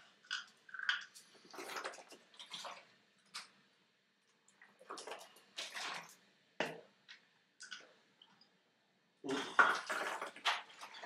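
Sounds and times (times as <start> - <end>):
person gulping a drink: 0.0 - 3.5, 9.2 - 11.0.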